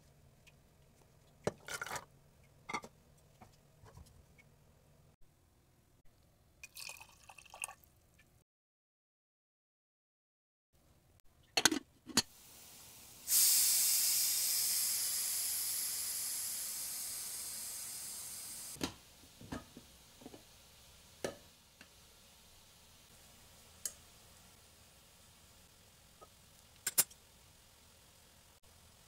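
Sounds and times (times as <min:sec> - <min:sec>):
pressure cooker steam hiss: 0:12.2 - 0:29.0.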